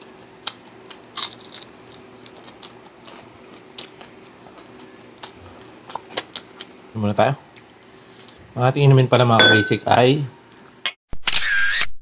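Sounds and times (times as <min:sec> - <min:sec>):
crisp crunches while eating: 0:00.0 - 0:06.9
faint steady hum: 0:00.0 - 0:10.8.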